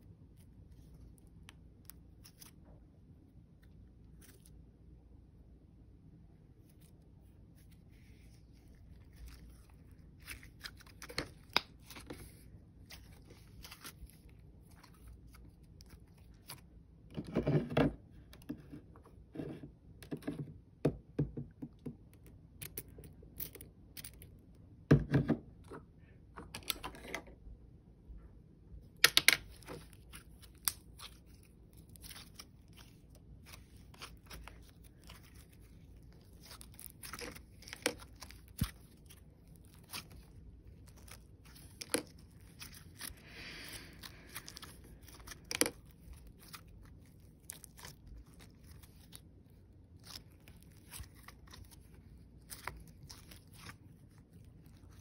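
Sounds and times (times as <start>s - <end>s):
slime squishing: 0.1s - 4.6s, 6.5s - 19.5s, 28.9s - 55.0s.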